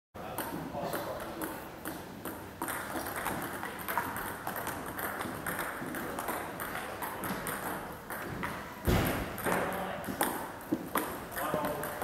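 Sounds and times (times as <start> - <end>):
table tennis ball clicking: 0.4 - 8.6.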